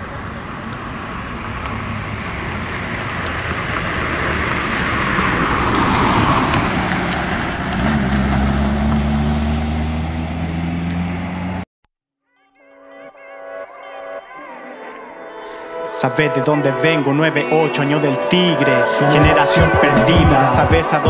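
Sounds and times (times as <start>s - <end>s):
car passing by: 0.0s - 11.6s.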